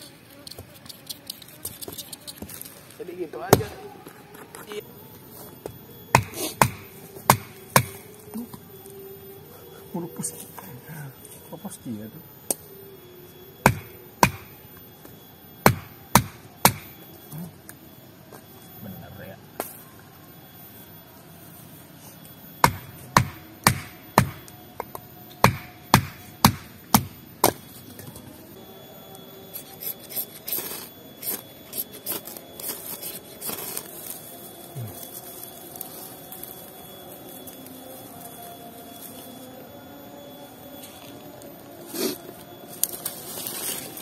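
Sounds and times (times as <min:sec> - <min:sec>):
rustling: 0:40.9 - 0:44.0.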